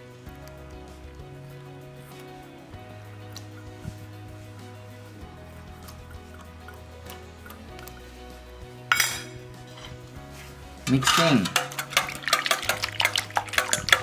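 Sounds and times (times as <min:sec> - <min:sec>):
utensil clinking in metal bowl: 0:08.9 - 0:10.0, 0:10.8 - 0:14.0.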